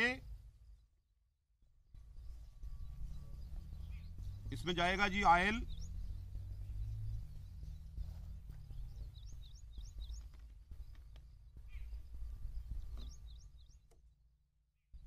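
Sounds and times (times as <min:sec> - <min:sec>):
wind rumble on microphone: 0:01.9 - 0:13.9
small bird chirping: 0:02.0 - 0:14.2.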